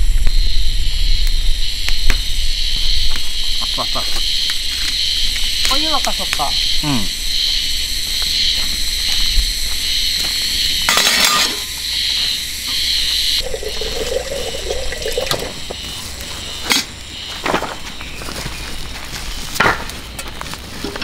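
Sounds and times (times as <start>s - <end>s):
water pouring into kettle: 13.4s - 15.6s.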